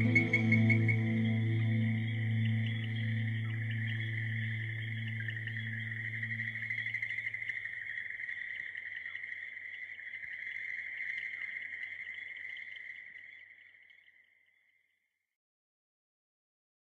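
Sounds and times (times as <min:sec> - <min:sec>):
crickets chirping: 0:00.0 - 0:14.9.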